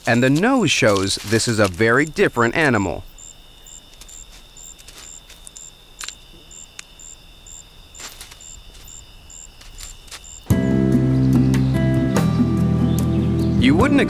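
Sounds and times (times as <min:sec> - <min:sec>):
steady high insect trill: 0:00.0 - 0:11.1
high insect chirp: 0:00.0 - 0:12.0
sharp clicks: 0:03.8 - 0:07.1.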